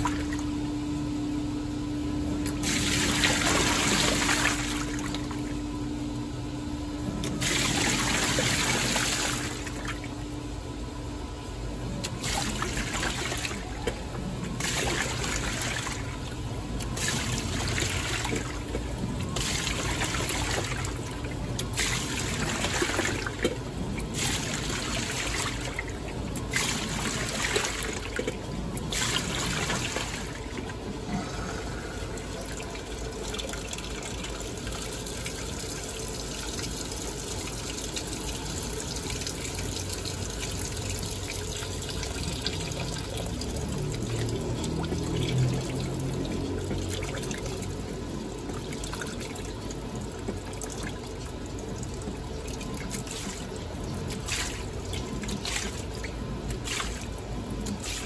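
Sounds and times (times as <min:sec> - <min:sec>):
washer water sloshing: 0:00.0 - 0:00.7, 0:02.2 - 0:05.9, 0:06.8 - 0:10.7, 0:11.3 - 0:58.0
washer motor humming: 0:00.0 - 0:58.0
water pouring into tub: 0:02.4 - 0:05.5, 0:07.3 - 0:10.2, 0:12.0 - 0:58.0.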